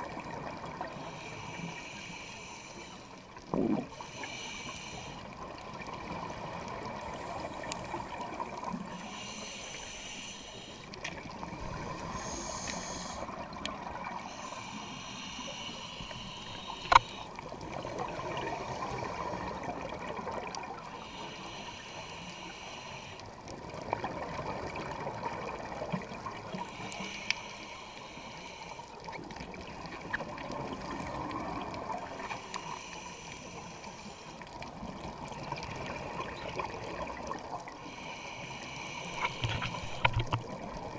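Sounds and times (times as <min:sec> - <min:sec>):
regulator hissing inhale: 0:00.9 - 0:03.3, 0:03.9 - 0:05.5, 0:07.0 - 0:13.4, 0:14.0 - 0:17.4, 0:20.9 - 0:23.4, 0:26.5 - 0:29.1, 0:32.2 - 0:34.6, 0:37.7 - 0:40.2
bubbling exhaled air: 0:03.4 - 0:04.2.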